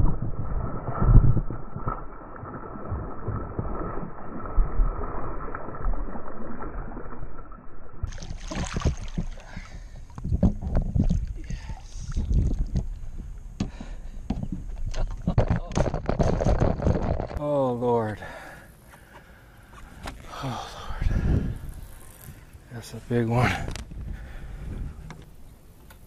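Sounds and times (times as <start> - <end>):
water splashing and sloshing: 0.0 - 13.4.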